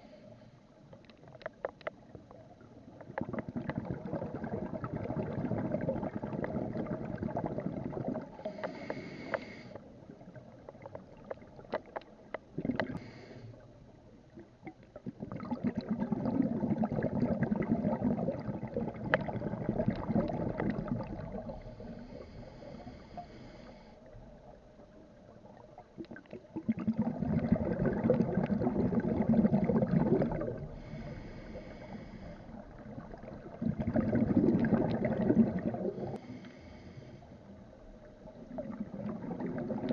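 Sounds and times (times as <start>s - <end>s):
exhaled bubbles gurgling: 1.1s - 39.9s
regulator inhale hiss: 8.4s - 9.9s, 12.9s - 13.7s, 21.6s - 24.2s, 30.7s - 32.8s, 36.0s - 37.6s.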